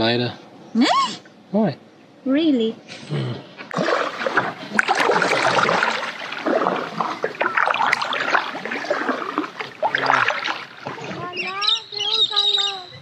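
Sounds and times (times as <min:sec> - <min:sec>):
paddle strokes: 0:03.7 - 0:11.6
water washing against hull: 0:03.7 - 0:11.8
water splashing and trickling: 0:03.7 - 0:12.1.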